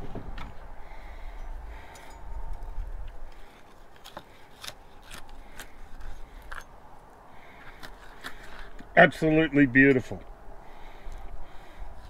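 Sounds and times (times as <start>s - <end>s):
knife cutting pork crackling: 3.8s - 6.6s.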